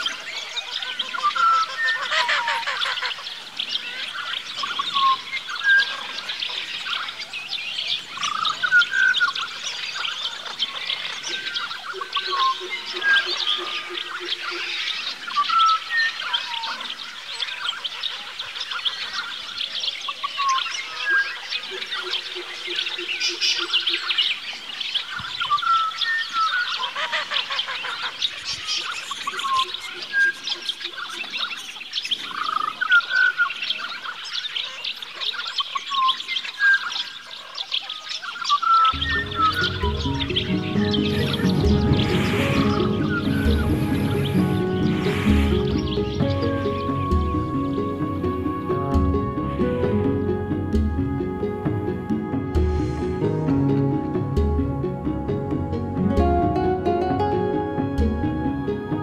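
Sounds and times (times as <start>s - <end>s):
birds chattering: 0.0s - 48.7s
low rapidly pulsing bird call: 38.5s - 54.5s.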